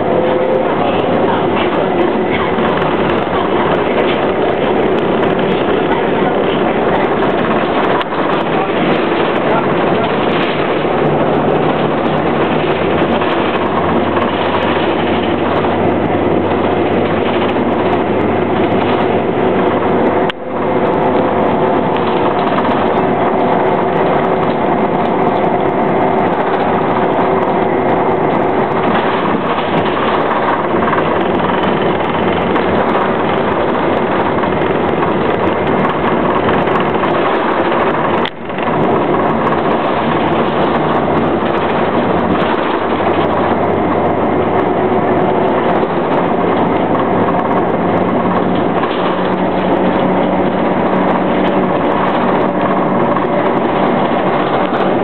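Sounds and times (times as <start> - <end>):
bus engine hum: 0.0 - 55.0
road noise: 0.0 - 55.0.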